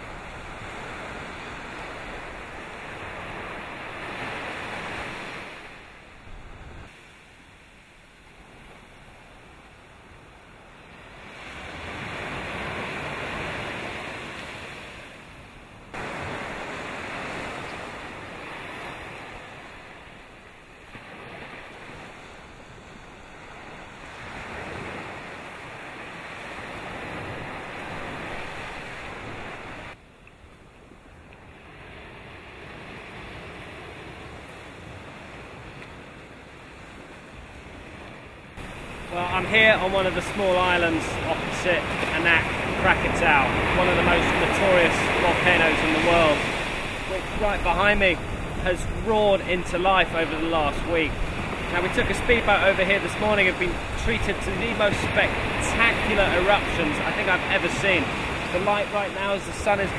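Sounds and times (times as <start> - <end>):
surf breaking on beach: 15.9 - 30.0, 38.6 - 59.9.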